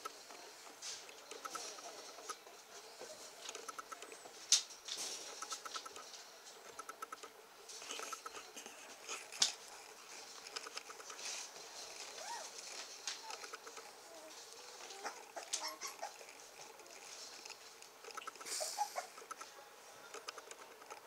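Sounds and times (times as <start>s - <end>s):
paws scratching on blanket: 7.7s - 19.1s
puppies squeaking and whining: 12.0s - 16.7s, 18.1s - 19.4s.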